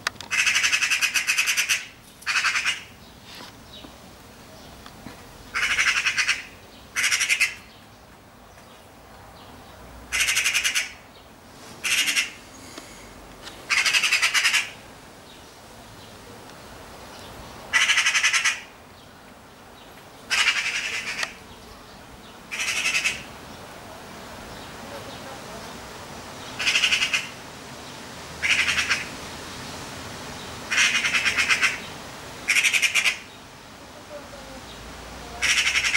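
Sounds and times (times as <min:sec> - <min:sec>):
magpie rattling chatter: 0:00.2 - 0:02.9, 0:05.5 - 0:07.7, 0:10.1 - 0:11.0, 0:11.8 - 0:12.4, 0:13.7 - 0:14.8, 0:17.7 - 0:18.7, 0:20.3 - 0:21.4, 0:22.5 - 0:23.3, 0:26.6 - 0:27.4, 0:28.4 - 0:29.1, 0:30.7 - 0:31.8, 0:32.5 - 0:33.2, 0:35.4 - 0:35.9.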